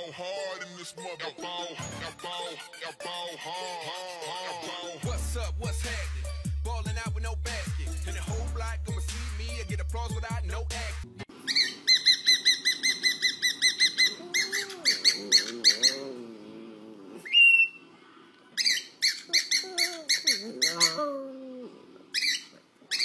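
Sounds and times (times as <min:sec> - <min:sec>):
cockatiel chirping: 0:11.5 - 0:16.1, 0:17.3 - 0:17.8, 0:18.6 - 0:21.0, 0:22.2 - 0:23.0
low wavering bird calls: 0:11.5 - 0:16.3, 0:18.6 - 0:23.0.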